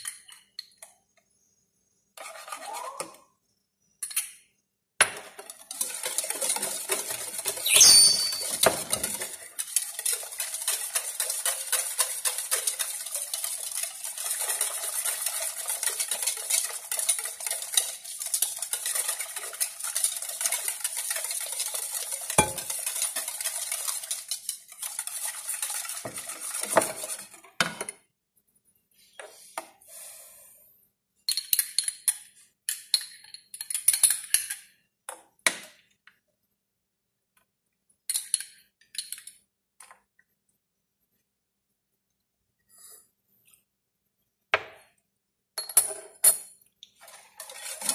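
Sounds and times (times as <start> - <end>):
utensil stirring in mixing bowl: 2.2 - 3.0, 5.2 - 27.6, 46.8 - 47.9.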